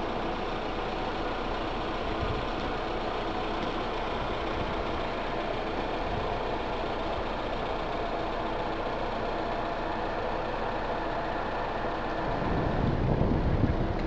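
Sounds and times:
vehicle engine idling: 0:00.0 - 0:14.0
wind buffeting microphone: 0:12.2 - 0:14.0.

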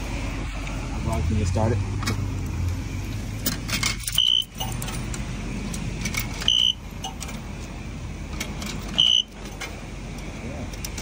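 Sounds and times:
short high beeps: 0:06.5 - 0:06.8, 0:09.0 - 0:09.3.

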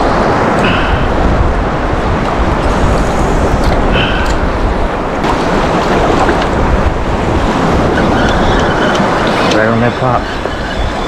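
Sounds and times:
surf waves washing: 0:00.0 - 0:11.0
wind buffeting microphone: 0:00.0 - 0:11.0
water sloshing: 0:02.0 - 0:11.0.

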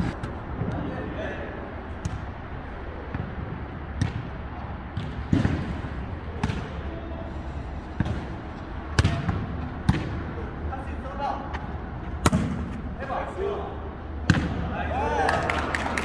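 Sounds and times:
ball being kicked and bouncing: 0:08.0 - 0:10.3.

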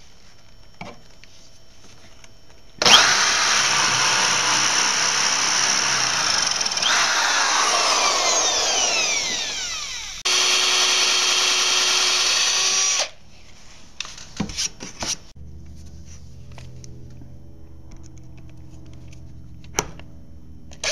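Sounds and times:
drill cutting countersink in wood: 0:02.8 - 0:13.2
power drill boring into wood: 0:02.8 - 0:13.2.

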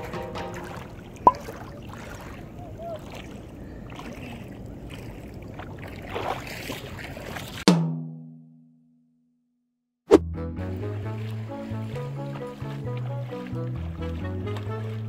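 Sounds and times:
water sloshing: 0:00.0 - 0:07.7, 0:10.9 - 0:15.0.

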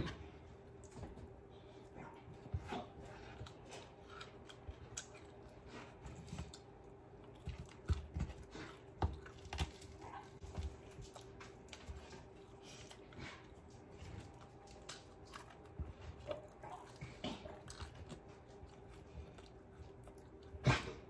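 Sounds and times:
crunching and chewing: 0:00.0 - 0:21.0.

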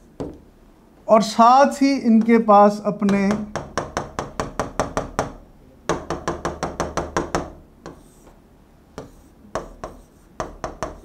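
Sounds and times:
pen tapping on screen: 0:03.0 - 0:08.4, 0:09.0 - 0:11.0.

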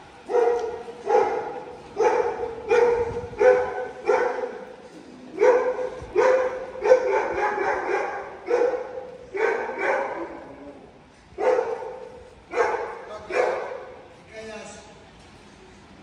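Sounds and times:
dog barking: 0:00.3 - 0:04.7, 0:05.4 - 0:10.8, 0:11.4 - 0:14.0.

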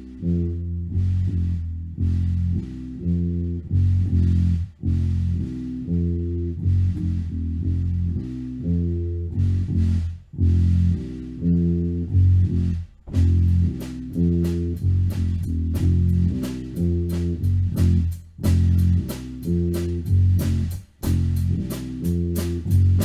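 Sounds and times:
drum kit playing: 0:00.0 - 0:23.0
heavy rock bass guitar riff: 0:00.0 - 0:23.0.

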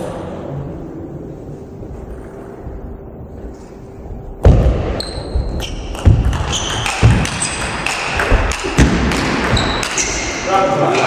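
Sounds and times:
shoes thudding and squeaking: 0:04.4 - 0:10.4
ping pong ball striking bats and table: 0:05.9 - 0:10.3.

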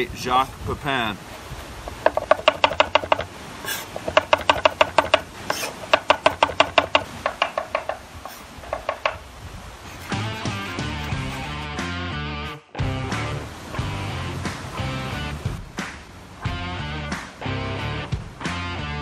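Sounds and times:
knife tapping on wooden board: 0:01.9 - 0:09.2
music: 0:10.1 - 0:19.0.

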